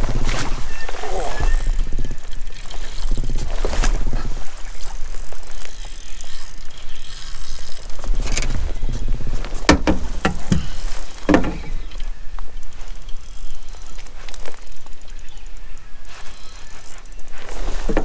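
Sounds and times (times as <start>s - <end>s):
fishing reel whirring and clicking: 0.2s - 18.0s
sharp knocks: 9.7s - 11.7s.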